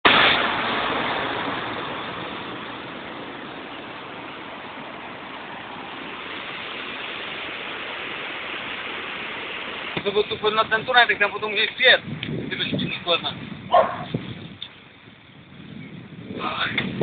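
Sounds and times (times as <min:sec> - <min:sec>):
floodwater rushing: 0:00.0 - 0:12.0.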